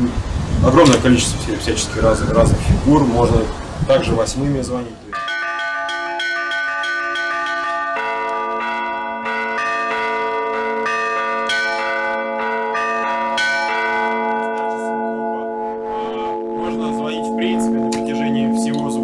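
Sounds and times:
low heavy bell ringing: 5.1s - 19.0s
small bells chiming: 5.1s - 19.0s
fast church bell strokes: 5.2s - 19.0s.

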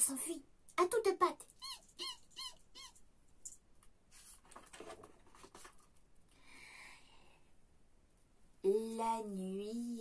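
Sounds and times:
high mouse-like squeaks: 1.5s - 3.0s
book page turning: 4.1s - 5.9s.

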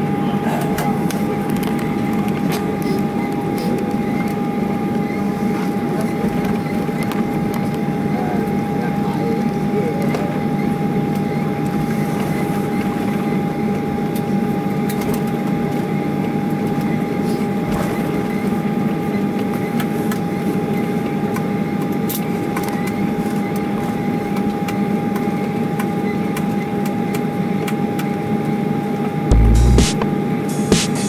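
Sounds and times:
high whine: 29.3s - 31.0s.

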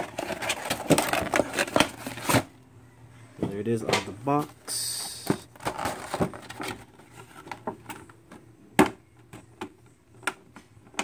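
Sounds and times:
plastic packaging clicks and knocks: 0.0s - 2.4s.

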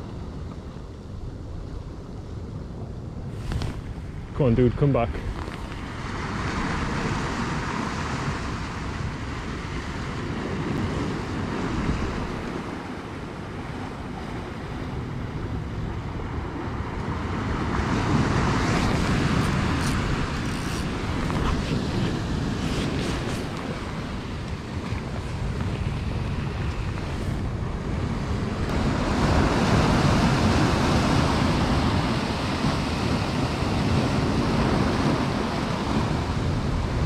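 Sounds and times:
wind on microphone: 0.0s - 37.0s
surf washing against rocks: 3.2s - 37.0s.

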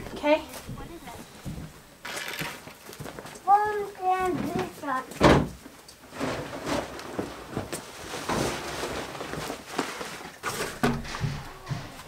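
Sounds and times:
footsteps: 0.0s - 5.2s, 6.2s - 12.0s
objects rustling and scraping: 0.0s - 12.0s
objects knocking and clattering: 4.3s - 12.0s.

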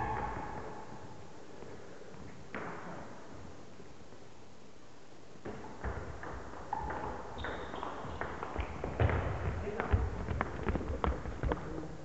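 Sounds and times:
shoe squeaks: 6.7s - 8.2s.

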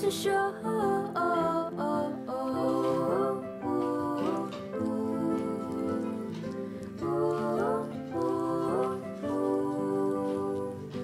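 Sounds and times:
soft gentle background music: 0.0s - 11.0s.

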